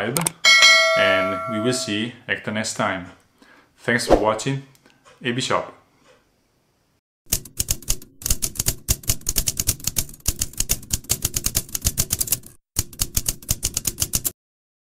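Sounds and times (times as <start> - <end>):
typewriter key clatter: 7.3 - 14.3.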